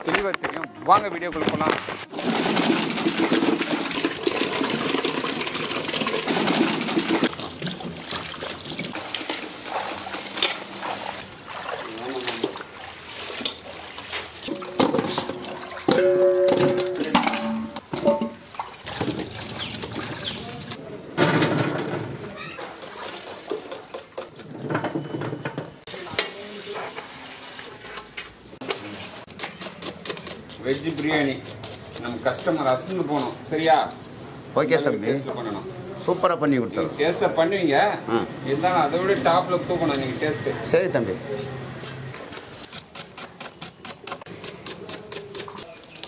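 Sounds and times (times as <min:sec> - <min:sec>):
water splashing in a pot: 0:02.1 - 0:16.0, 0:18.2 - 0:20.8, 0:22.3 - 0:24.3.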